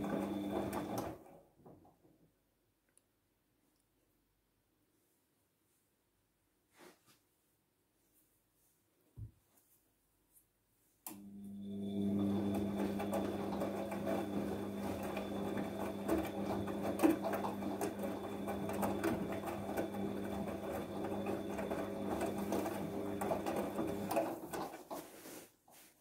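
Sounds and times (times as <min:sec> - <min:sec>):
washing machine motor humming: 0:00.0 - 0:01.4, 0:11.1 - 0:25.1.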